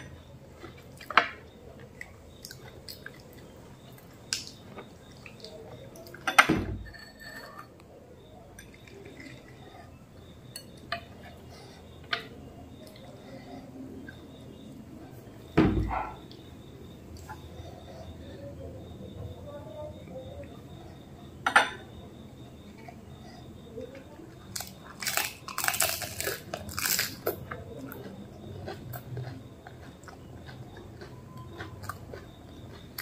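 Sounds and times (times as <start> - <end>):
crisp shells cracking: 24.6 - 27.3.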